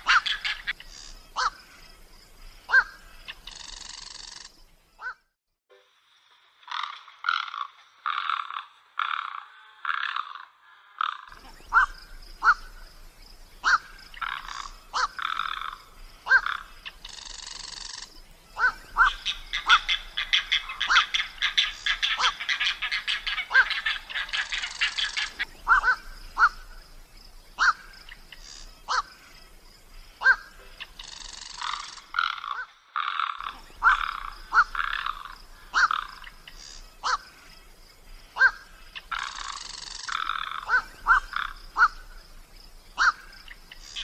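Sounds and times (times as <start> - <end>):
animal chirps: 6.7 - 12.9, 13.6 - 26.9, 27.6 - 29.2, 30.2 - 42.3.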